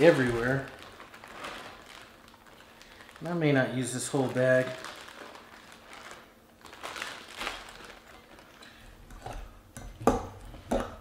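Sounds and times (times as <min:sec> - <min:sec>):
plastic bag rustling: 0:00.0 - 0:09.6.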